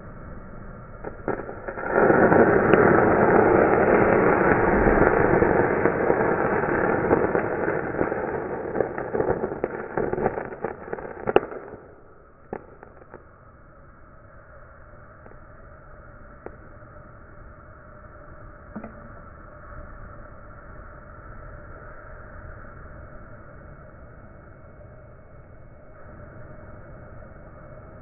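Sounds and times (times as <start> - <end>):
thermite burning with crackles: 0.0 - 23.1
sharp crack: 1.0 - 13.4
torch hiss: 1.0 - 18.2.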